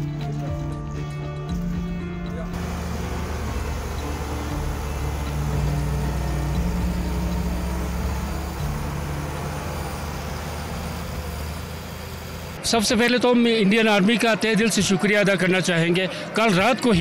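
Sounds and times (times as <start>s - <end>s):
bulldozer diesel engine: 2.6s - 12.8s.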